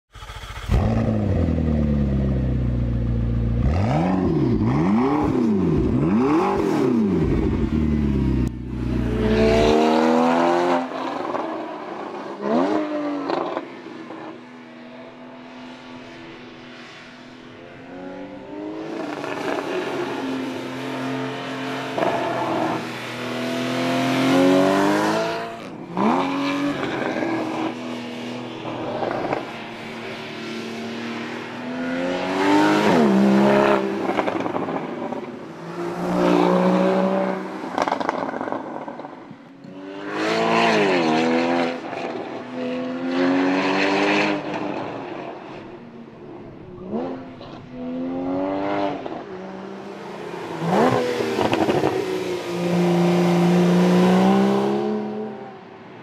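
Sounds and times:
car engine accelerating: 0.1s - 11.4s, 46.8s - 55.5s.

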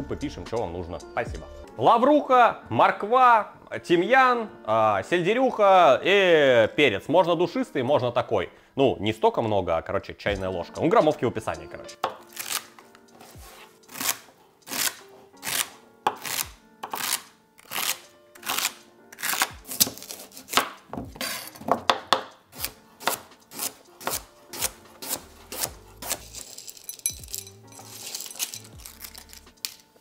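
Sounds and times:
knife chopping on cutting board: 13.3s - 26.4s.

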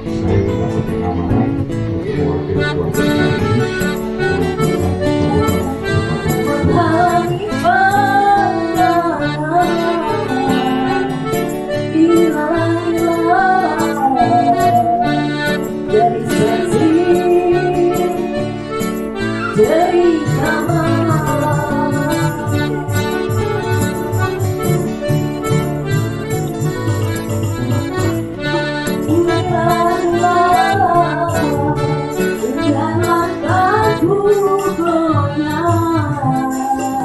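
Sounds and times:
music backing track: 0.0s - 37.0s
woman singing into a microphone: 5.1s - 25.0s, 28.9s - 37.0s.

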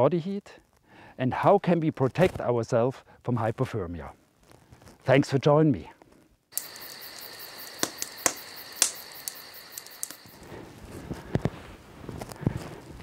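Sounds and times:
sharp clicks: 6.6s - 10.4s.

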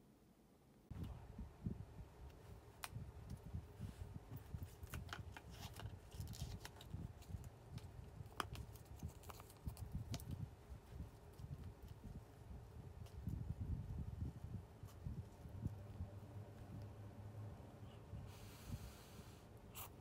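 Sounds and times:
paper lid crinkling and rustling: 4.5s - 10.3s.

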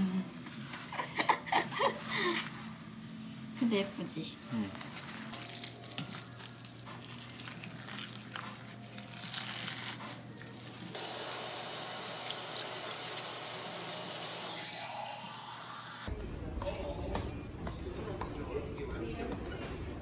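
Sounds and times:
wet seaweed squishing in water: 5.3s - 10.8s
kitchen tap running: 11.0s - 15.8s.

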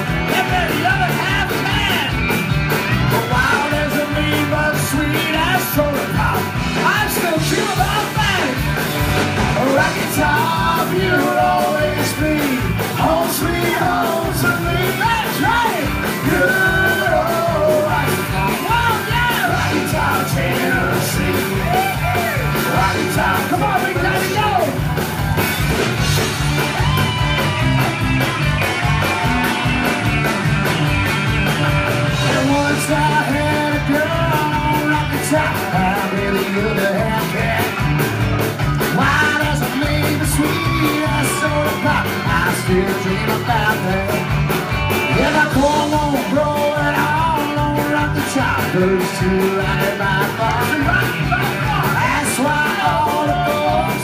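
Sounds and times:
electric guitars: 0.0s - 54.0s
live band music: 0.0s - 54.0s
person singing: 3.1s - 8.7s, 9.5s - 24.8s, 32.2s - 37.8s, 38.8s - 44.4s, 45.0s - 54.0s.

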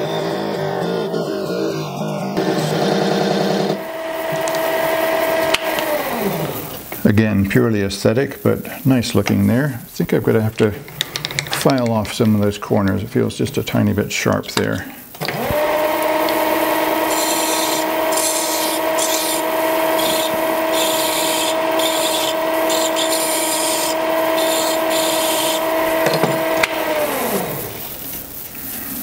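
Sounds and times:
lathe motor whining: 0.0s - 7.0s, 15.2s - 27.9s
file scraping spinning metal: 15.3s - 27.8s.

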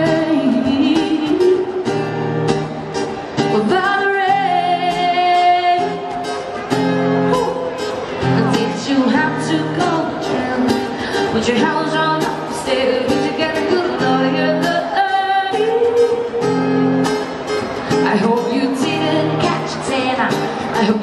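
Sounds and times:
woman singing: 0.0s - 2.0s, 3.4s - 6.4s, 7.2s - 16.7s, 17.9s - 21.0s
acoustic guitar: 0.0s - 21.0s.

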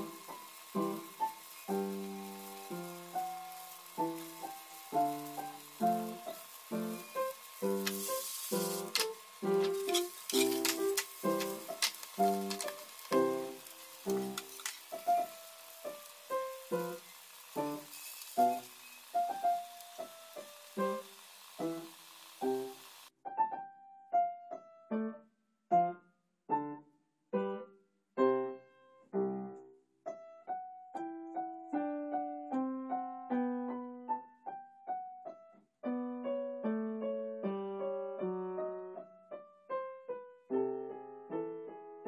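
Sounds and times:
pancake sizzling in pan: 0.0s - 23.2s
solo piano music: 0.0s - 42.0s.

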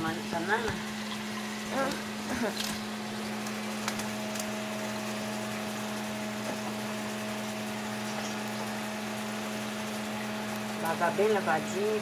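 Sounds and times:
tap water running into sink: 0.0s - 4.4s.

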